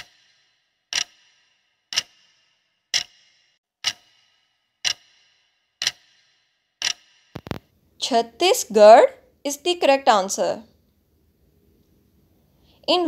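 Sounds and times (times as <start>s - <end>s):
clock ticks with ringing tail: 0.0s - 7.6s.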